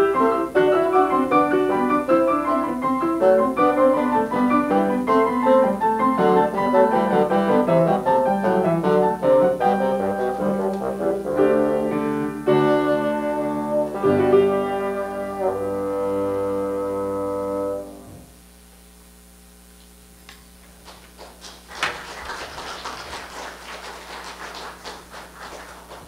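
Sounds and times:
bassoon and piano: 0:00.0 - 0:18.4
audience clapping: 0:20.6 - 0:26.0.

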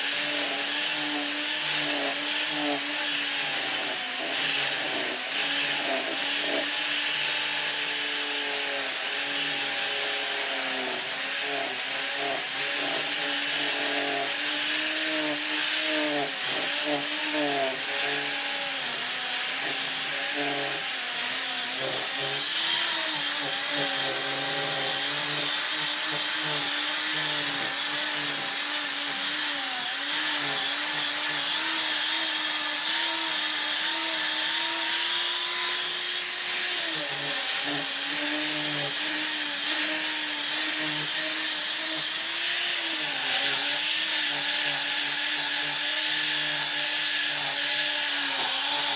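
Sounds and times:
angle grinder sanding wood: 0:00.0 - 0:48.9.

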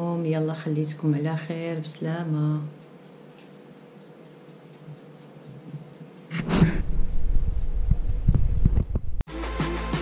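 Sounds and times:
faint room hiss: 0:00.0 - 0:09.0
microphone handling noise: 0:06.3 - 0:09.2.

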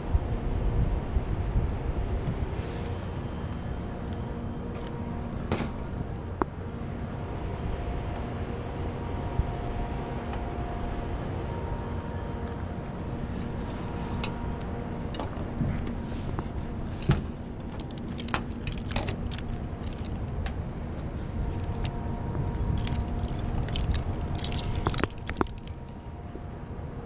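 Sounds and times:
metal hardware clinking: 0:17.6 - 0:20.6, 0:22.7 - 0:25.9.

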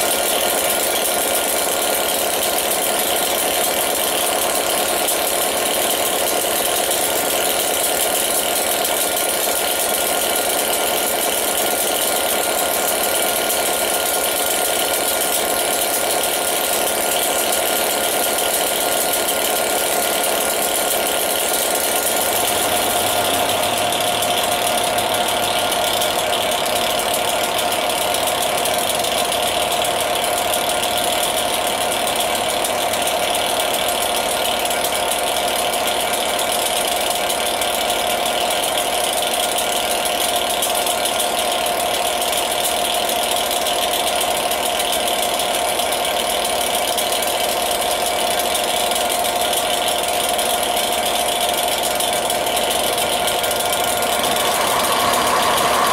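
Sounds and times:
diesel locomotive idling: 0:00.0 - 0:37.9, 0:49.0 - 0:55.9
constant whine: 0:20.7 - 0:28.3, 0:52.4 - 0:55.9.

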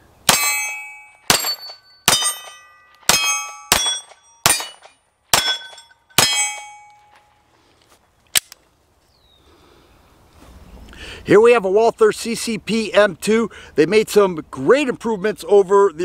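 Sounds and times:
steel plate target clanging: 0:00.3 - 0:07.1
pistol shots: 0:01.2 - 0:06.8.

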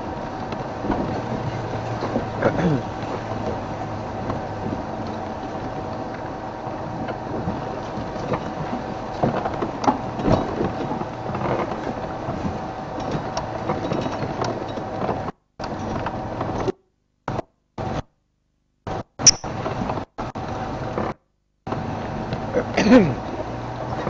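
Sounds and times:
vehicle engine running: 0:00.0 - 0:16.7, 0:18.9 - 0:24.0
knocks and rattles from bumps: 0:00.0 - 0:17.5.

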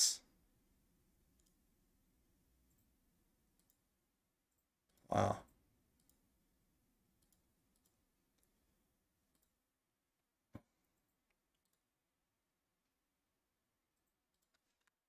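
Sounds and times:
faint clicks: 0:03.6 - 0:03.8.

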